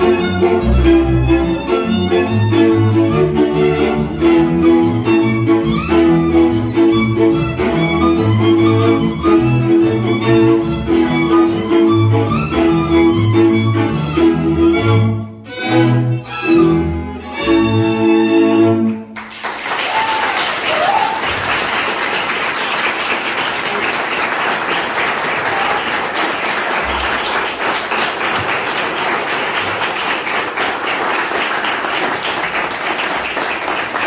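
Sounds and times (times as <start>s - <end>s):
folk string band playing: 0.0s - 19.2s
audience applauding: 19.1s - 34.0s.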